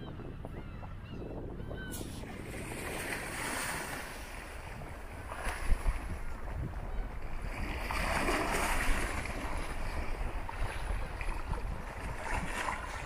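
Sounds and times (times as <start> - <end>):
wind rumbling on microphone: 0.0 - 13.0
sea waves washing onto beach: 2.0 - 6.5.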